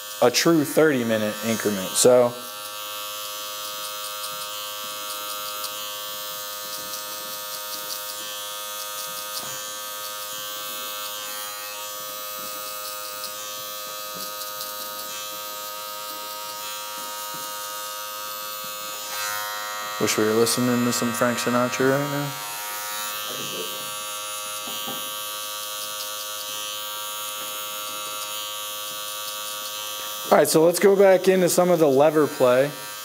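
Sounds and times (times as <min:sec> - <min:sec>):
hair clipper buzzing: 0:00.0 - 0:33.0.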